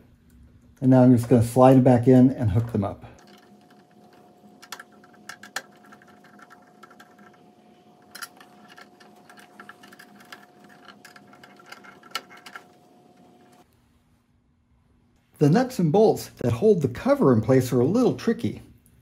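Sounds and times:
screwdriver clicking on metal terminals: 0:03.2 - 0:07.4, 0:08.0 - 0:13.2.

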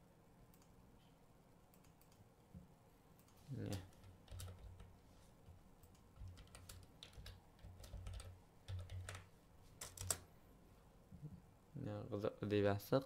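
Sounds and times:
keyboard keys clicking: 0:03.2 - 0:04.9, 0:05.8 - 0:10.2.

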